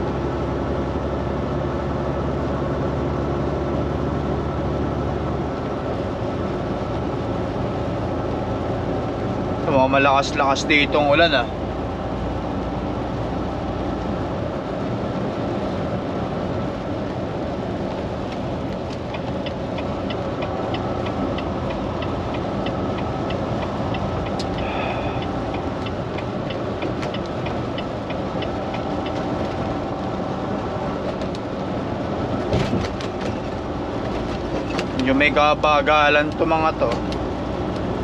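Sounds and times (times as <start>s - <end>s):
truck engine running: 0.0s - 38.0s
tyres on wet road: 0.0s - 38.0s
rain on truck: 11.6s - 38.0s
light regular ticking: 18.2s - 29.8s.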